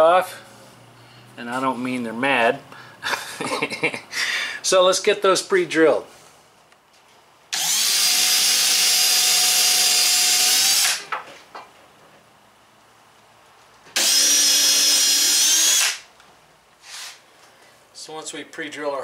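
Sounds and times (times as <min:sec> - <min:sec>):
power drill drilling plywood: 0:07.5 - 0:11.0, 0:14.0 - 0:16.0.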